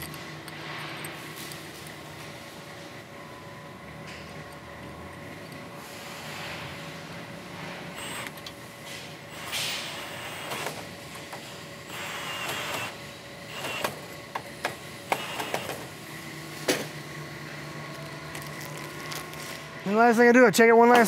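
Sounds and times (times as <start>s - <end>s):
cordless drill driving screws: 9.4s - 10.8s, 11.9s - 14.0s, 15.1s - 15.8s.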